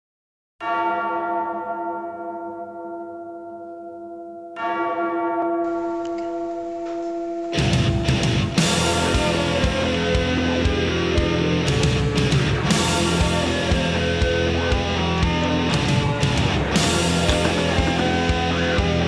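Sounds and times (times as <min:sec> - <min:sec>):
deep bell tolling: 0:00.6 - 0:09.6, 0:16.0 - 0:19.0
loud rock music: 0:07.5 - 0:19.0.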